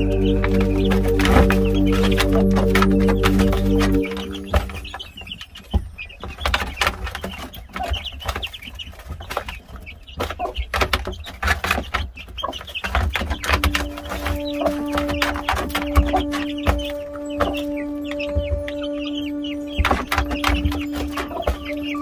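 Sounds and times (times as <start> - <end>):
low two-tone hum: 0.0 - 4.9
chickens clucking: 0.0 - 22.0.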